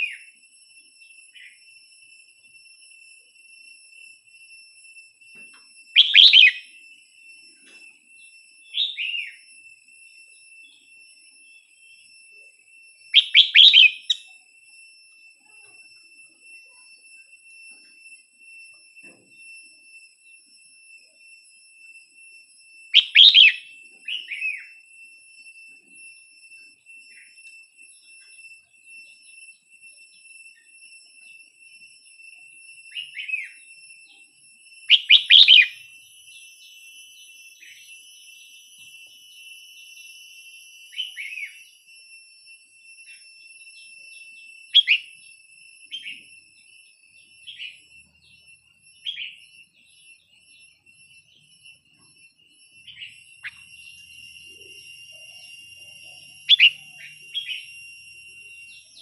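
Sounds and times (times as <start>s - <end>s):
steady high-pitched whine: 0.0s - 59.0s
bird singing short phrases: 6.0s - 6.6s, 13.2s - 14.3s.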